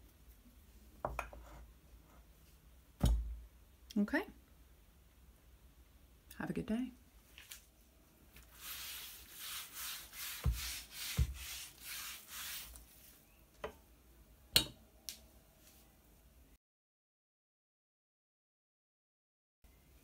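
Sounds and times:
cloth wiping wooden worktop: 8.4s - 13.2s.

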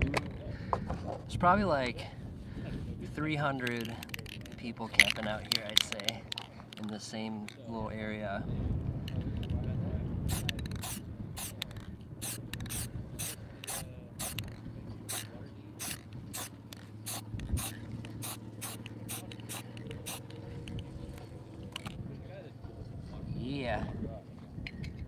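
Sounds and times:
spray can hissing bursts: 10.3s - 20.3s.

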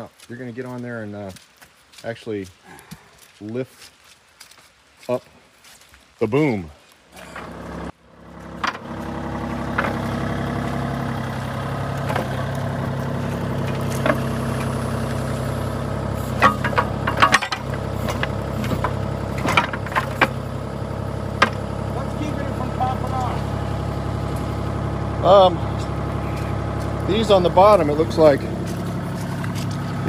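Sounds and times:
diesel engine idling: 7.2s - 30.0s
sharp metallic clanks: 16.3s - 20.4s.

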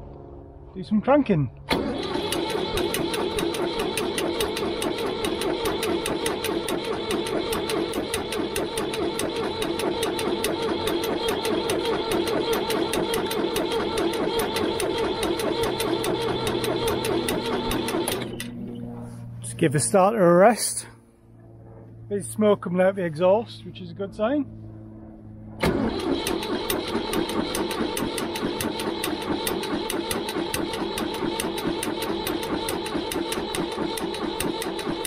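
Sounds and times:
starter motor cranking diesel engine: 1.7s - 18.6s, 25.6s - 35.0s.

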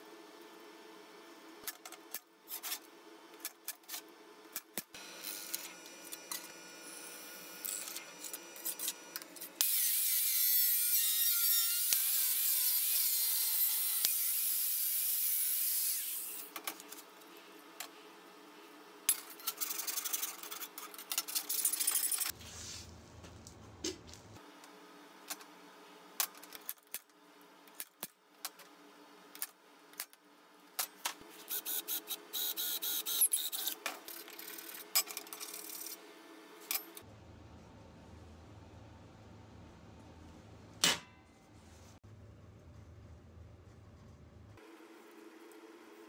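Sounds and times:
angle grinder cutting sheet steel: 5.0s - 16.5s.

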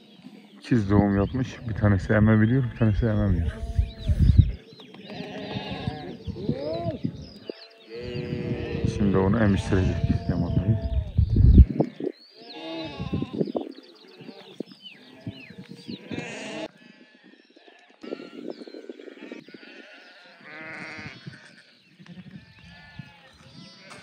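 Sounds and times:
sheep bleating: 5.1s - 7.0s, 7.8s - 13.4s, 16.0s - 18.5s, 19.6s - 24.0s.

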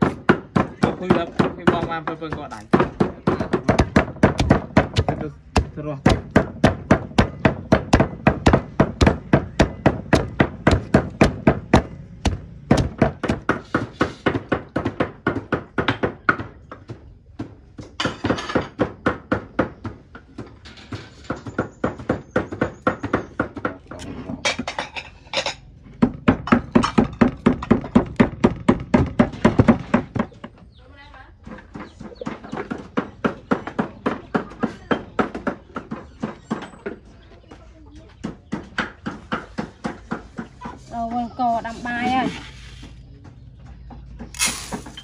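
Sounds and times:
pestle pounding in stone mortar: 0.0s - 20.5s, 21.3s - 24.0s, 26.0s - 30.5s.

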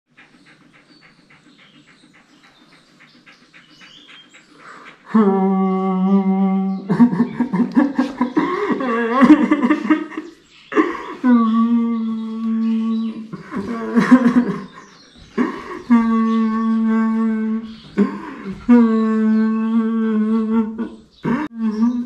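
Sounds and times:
man crying loudly: 5.1s - 10.2s.

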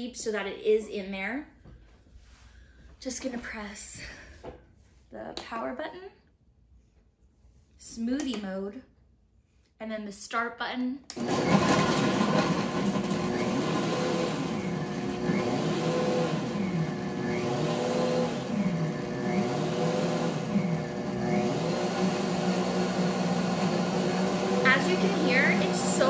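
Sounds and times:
blender motor running: 11.1s - 26.0s.

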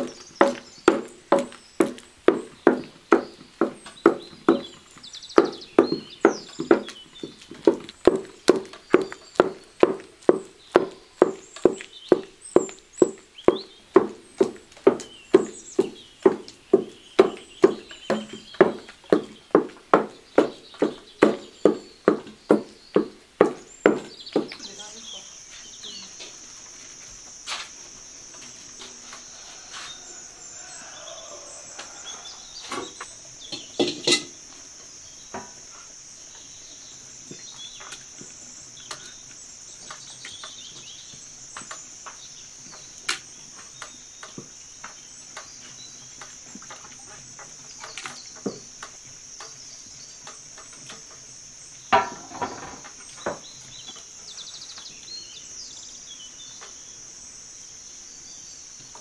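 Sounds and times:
crickets chirring: 0.0s - 59.0s
metal cooking pots clattering: 33.5s - 34.4s, 51.9s - 53.4s.

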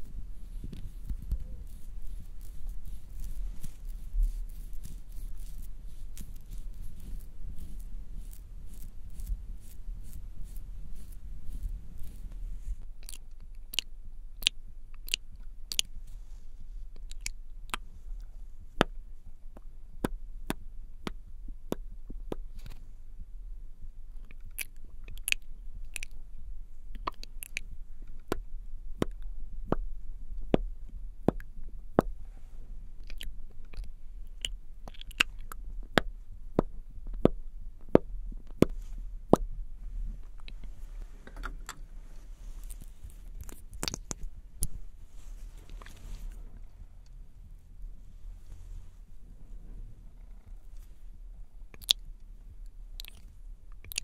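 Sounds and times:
steady low hum: 0.0s - 54.0s
wet lip clicks: 13.0s - 15.9s, 17.0s - 17.9s, 24.1s - 26.2s, 26.9s - 29.8s, 33.0s - 38.8s, 42.6s - 44.8s, 51.7s - 52.1s, 53.0s - 54.0s.

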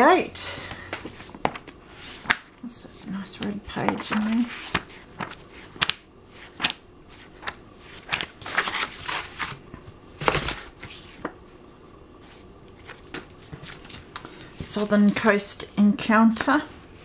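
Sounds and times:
book pages flipping: 0.9s - 15.3s.

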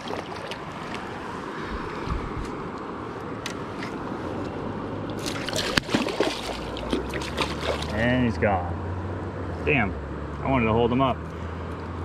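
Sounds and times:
fish splashing: 0.0s - 1.3s, 5.1s - 8.0s
wind buffeting microphone: 1.7s - 2.7s.

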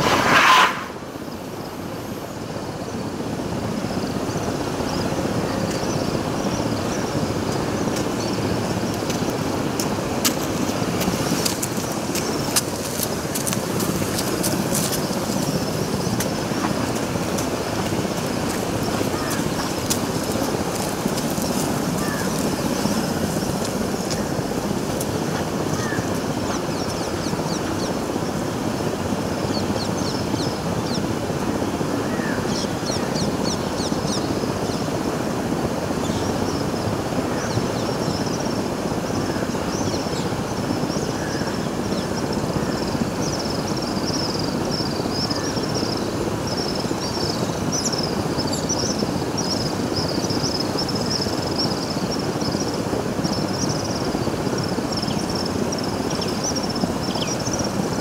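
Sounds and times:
wind on microphone: 0.0s - 2.0s.

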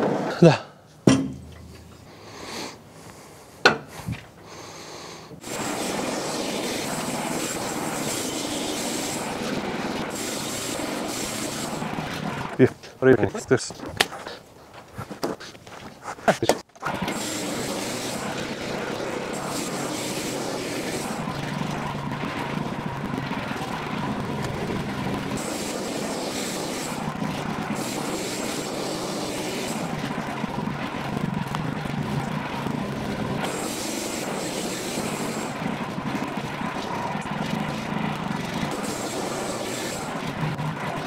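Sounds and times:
high hiss: 1.6s - 12.7s, 17.1s - 22.5s, 23.4s - 30.0s, 33.4s - 35.6s, 38.7s - 40.3s
bandsaw mill cutting log: 5.4s - 12.7s, 16.8s - 41.0s.

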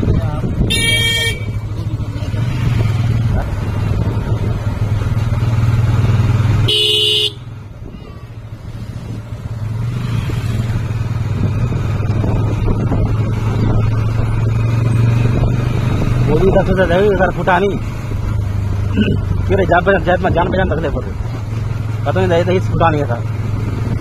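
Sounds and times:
motorcycle engine running: 0.0s - 24.0s
horn honk: 0.7s - 1.7s, 6.6s - 7.5s.

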